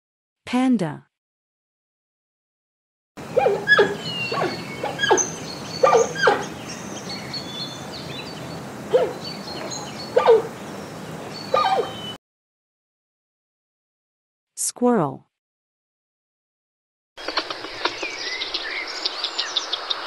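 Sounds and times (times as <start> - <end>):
steady background hiss: 3.2 - 12.1.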